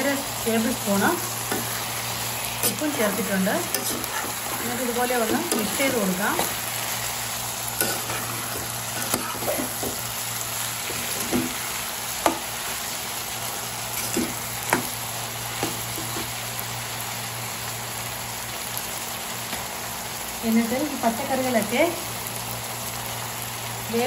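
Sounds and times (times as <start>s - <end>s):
vegetables sizzling in oil: 0.0s - 24.0s
spatula knocking and scraping pan: 1.5s - 1.9s, 2.6s - 6.6s, 7.8s - 10.1s, 10.8s - 12.5s, 14.0s - 15.0s.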